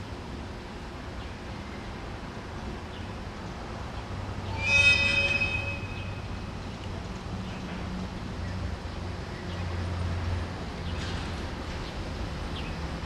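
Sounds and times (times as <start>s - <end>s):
locomotive air horn: 4.5s - 6.4s.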